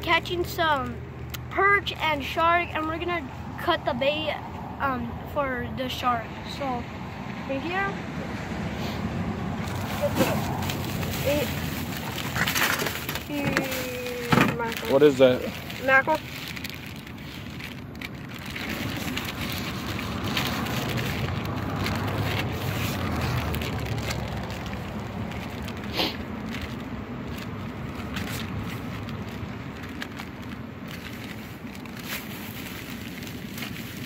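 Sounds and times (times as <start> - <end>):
plastic bag crinkling: 9.6 - 34.0.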